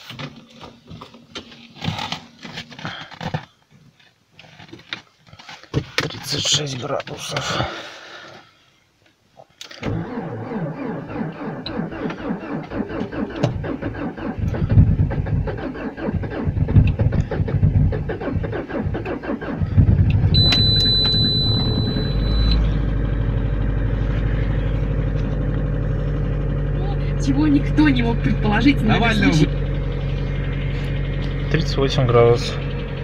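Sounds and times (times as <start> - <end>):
starter motor cranking: 9.8 - 23.5
car engine idling: 10.0 - 33.0
high steady beep: 20.3 - 22.8.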